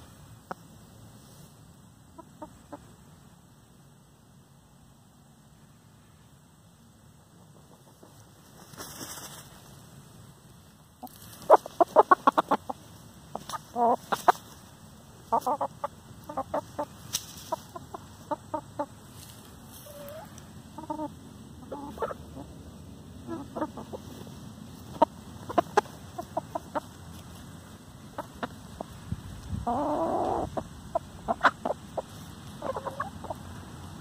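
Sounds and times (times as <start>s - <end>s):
hens clucking: 2.1s - 3.0s, 7.2s - 9.8s, 10.9s - 34.0s.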